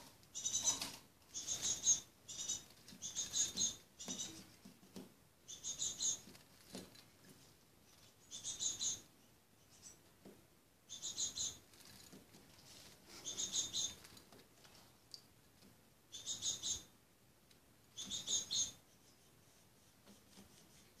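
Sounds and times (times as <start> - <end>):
juvenile tits chirping: 0.3 - 4.4, 5.4 - 6.3, 8.1 - 10.0, 10.9 - 11.7, 13.2 - 14.1, 16.1 - 16.9, 17.9 - 19.1.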